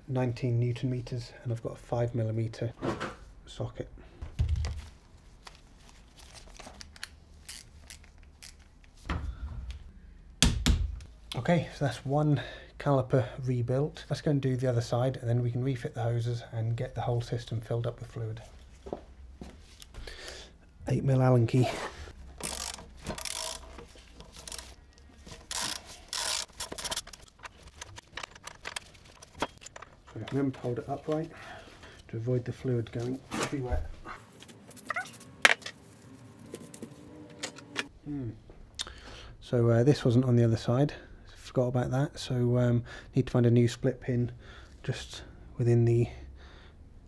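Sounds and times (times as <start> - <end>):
torque wrench clicking: 22.4 - 23.8, 25.5 - 27.2.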